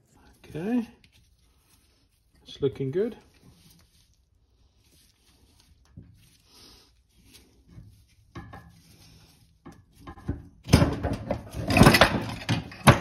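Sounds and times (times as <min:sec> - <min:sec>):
metal clattering and scraping: 0:07.7 - 0:13.0.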